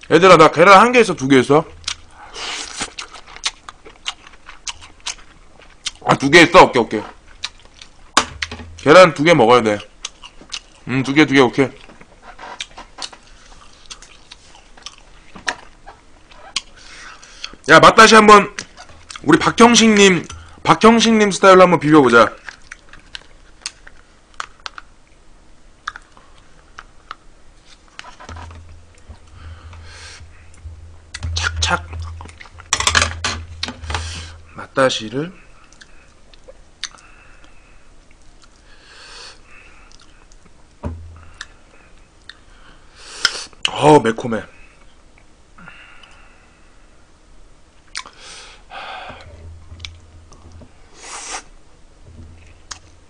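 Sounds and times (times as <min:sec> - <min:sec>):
low steady hum: 0:00.0 - 0:43.0, 0:44.4 - 0:53.0
breathy hisses: 0:02.1 - 0:02.8, 0:38.6 - 0:39.9, 0:48.1 - 0:49.4
sharp breath: 0:02.1 - 0:02.8, 0:29.3 - 0:30.3, 0:38.7 - 0:39.8, 0:48.1 - 0:49.4.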